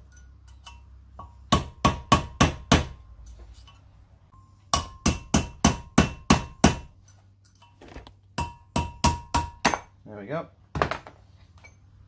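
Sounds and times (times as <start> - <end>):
hammer tapping metal punch: 0.0 - 3.0, 4.7 - 7.8, 8.4 - 9.9.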